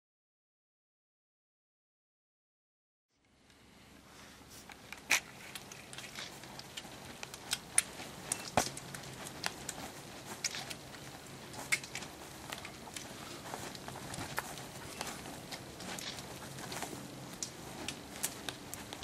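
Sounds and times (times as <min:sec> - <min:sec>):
campfire crackling and popping: 0:04.6 - 0:19.0.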